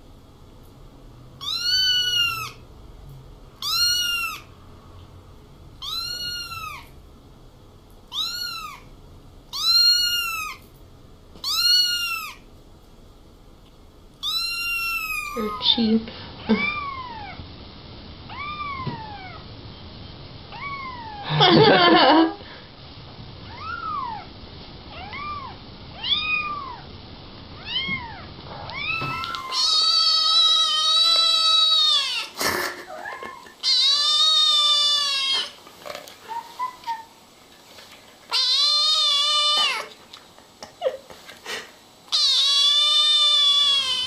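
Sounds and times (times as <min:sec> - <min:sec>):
kitten long loud meows: 0:01.4 - 0:02.6, 0:03.6 - 0:04.5, 0:05.8 - 0:06.9
kitten mewing: 0:01.4 - 0:02.6, 0:03.6 - 0:04.5, 0:05.8 - 0:06.9, 0:08.1 - 0:08.9, 0:09.5 - 0:10.6, 0:11.4 - 0:12.4, 0:14.2 - 0:15.7, 0:27.6 - 0:35.6, 0:38.3 - 0:39.9, 0:42.1 - 0:44.0.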